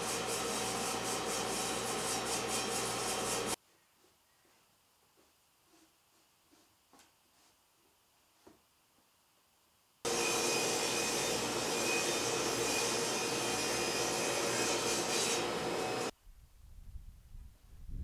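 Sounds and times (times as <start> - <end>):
woodworking machine running: 10.1 - 16.1.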